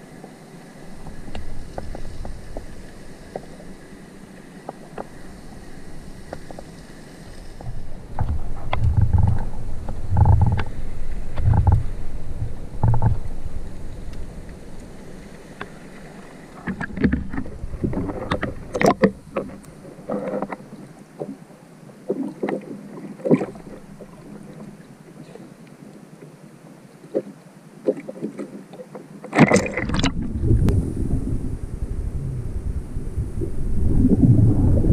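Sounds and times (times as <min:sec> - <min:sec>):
underwater clicks and knocks: 0:01.0 - 0:02.7, 0:07.6 - 0:13.3, 0:16.6 - 0:21.4, 0:22.0 - 0:25.4, 0:27.1 - 0:30.8
underwater water movement thumps: 0:16.6 - 0:20.6, 0:29.3 - 0:31.2.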